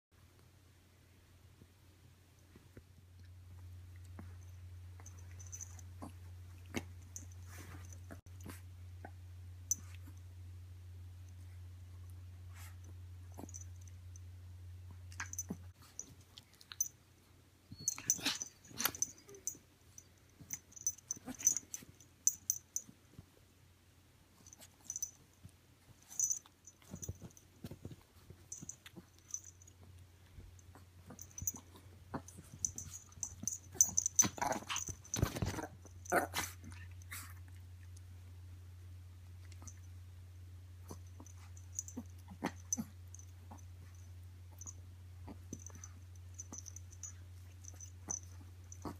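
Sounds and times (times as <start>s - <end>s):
dog play sounds: 17.7s - 23.2s, 24.3s - 37.6s.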